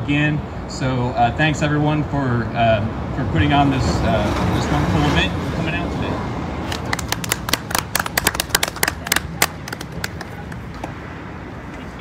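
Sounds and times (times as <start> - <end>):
small crowd applauding: 6.7 - 11.0.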